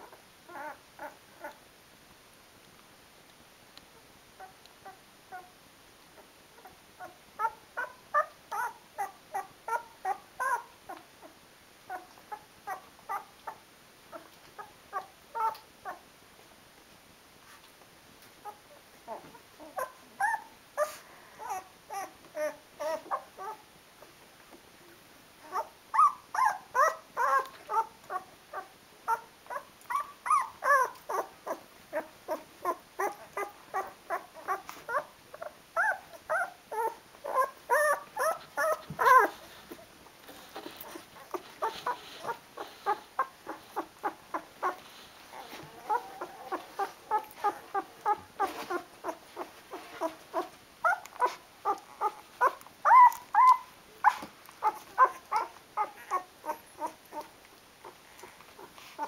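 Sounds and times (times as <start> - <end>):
puppies whimpering: 18.5 - 23.6, 25.4 - 59.0.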